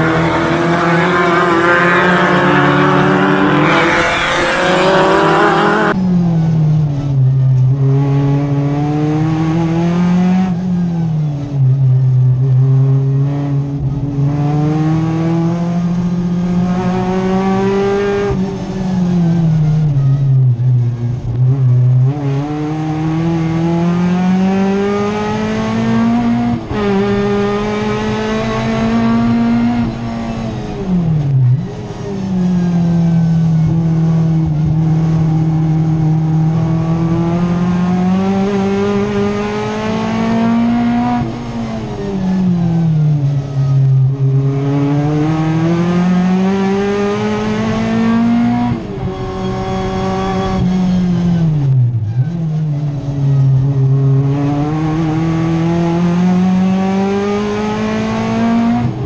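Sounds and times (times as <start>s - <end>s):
race car engine revving: 0.0s - 6.0s, 33.2s - 43.6s.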